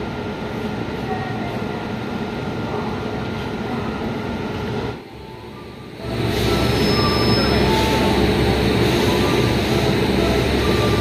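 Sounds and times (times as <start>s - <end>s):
locomotive rumble and hum: 0.0s - 11.0s.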